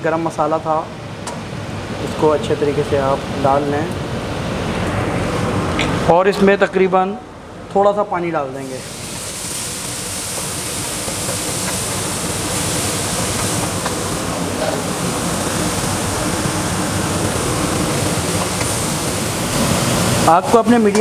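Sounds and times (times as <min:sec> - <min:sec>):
food sizzling in hot oil: 0:08.6 - 0:21.0.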